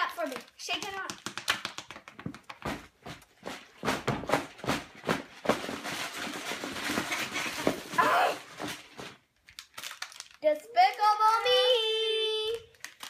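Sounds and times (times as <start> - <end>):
packets knocking and thudding: 0.1 - 10.4
crinkly rustling: 2.6 - 13.0.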